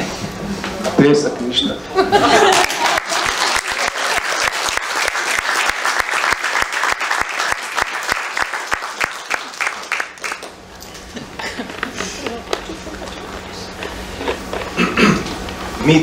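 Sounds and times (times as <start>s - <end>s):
audience applauding: 2.2s - 10.6s.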